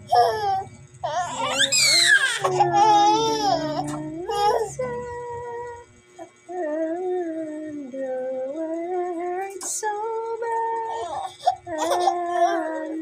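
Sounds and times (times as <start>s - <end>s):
slow sung melody: 0.0s - 13.0s
infant crying: 0.1s - 4.8s.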